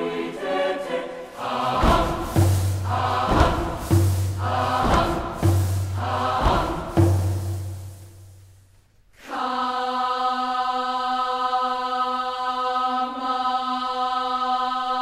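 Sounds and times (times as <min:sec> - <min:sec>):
background music: 0:00.0 - 0:08.6.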